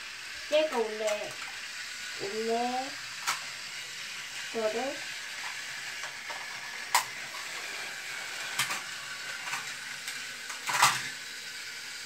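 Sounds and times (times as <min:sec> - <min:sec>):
toy trains whirring: 0:00.0 - 0:12.0
plastic clicks of toy cars: 0:03.2 - 0:03.5, 0:05.4 - 0:07.2, 0:08.4 - 0:11.2.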